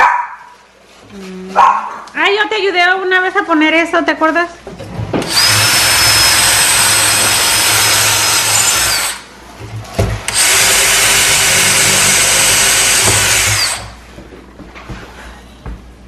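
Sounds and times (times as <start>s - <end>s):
cordless drill boring through wood: 5.2s - 9.3s, 10.3s - 14.0s.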